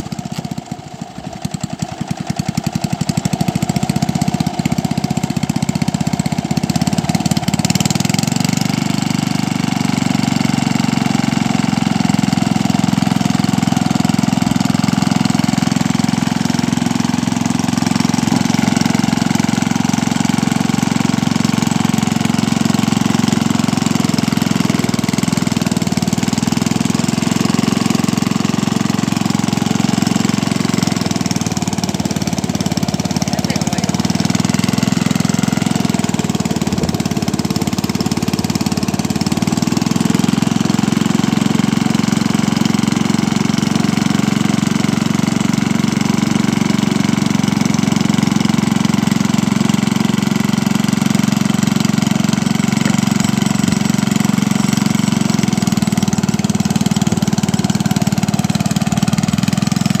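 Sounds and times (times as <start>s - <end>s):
small boat engine running: 0.0s - 60.0s.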